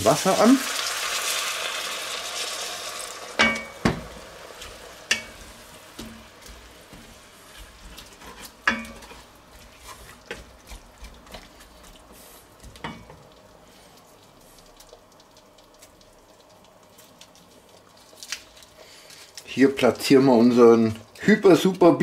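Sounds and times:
faint sizzle of cooking cabbage: 0.0s - 22.0s
wooden spatula scraping a pot: 4.5s - 12.5s.

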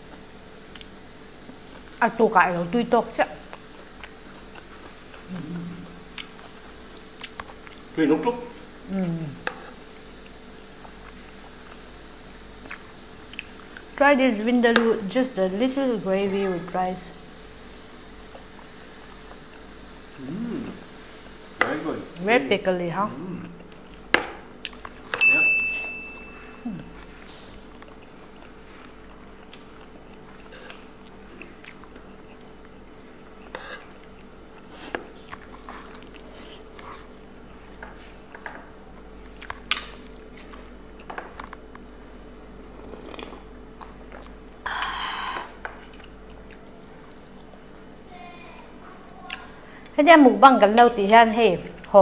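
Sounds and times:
insect chorus: 0.0s - 52.0s
people eating: 3.4s - 13.9s, 18.2s - 41.8s.

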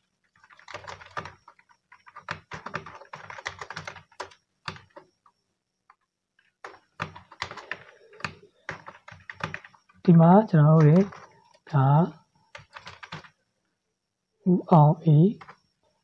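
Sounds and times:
computer keyboard typing: 0.0s - 10.0s, 10.6s - 11.8s, 12.5s - 13.4s, 15.3s - 15.6s.

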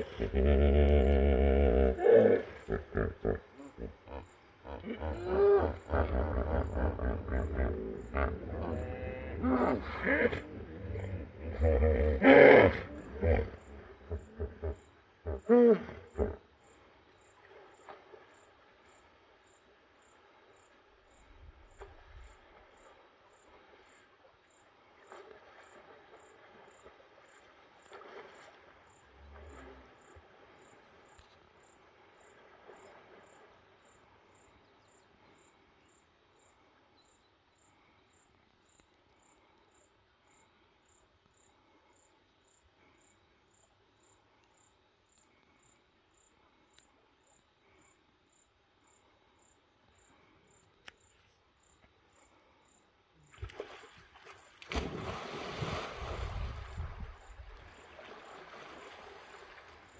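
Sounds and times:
insect chirping: 0.0s - 59.9s.

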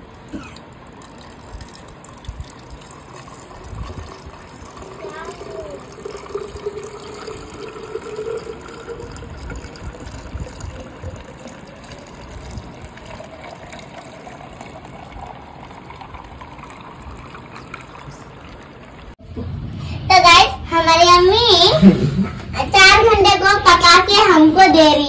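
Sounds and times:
juice pouring over ice: 0.0s - 19.2s.

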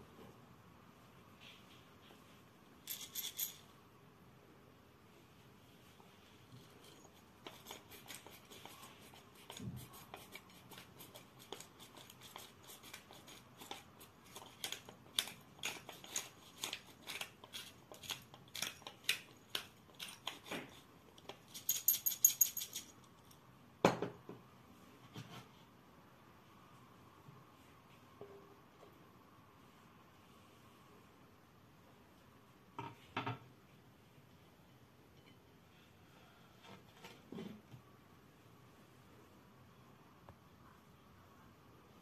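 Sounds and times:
pepper mill grinding: 10.2s - 20.5s.

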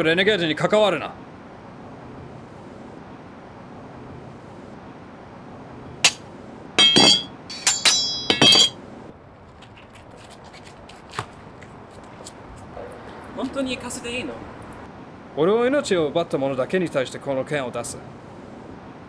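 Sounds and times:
metal weapons clanking on ground: 6.0s - 6.2s, 6.8s - 8.8s.

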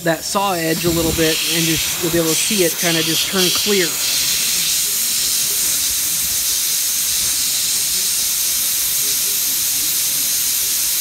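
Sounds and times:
hot-air welding gun hissing: 0.0s - 11.0s.

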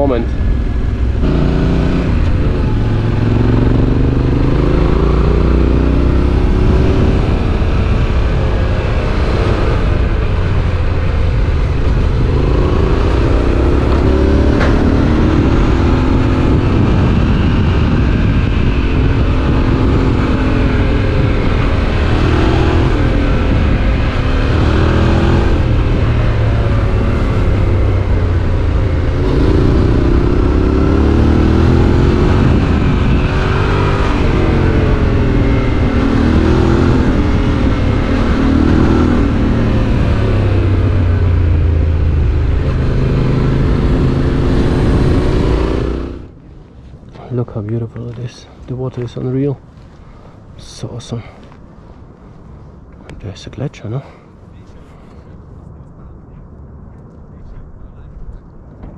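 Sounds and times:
motorcycle engine revving: 0.0s - 46.4s
low rumble: 0.0s - 58.9s.

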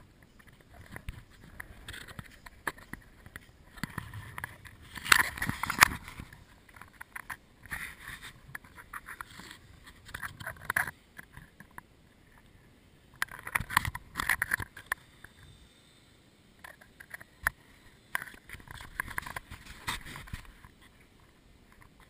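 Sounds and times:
scraping and clicking: 0.2s - 12.5s.

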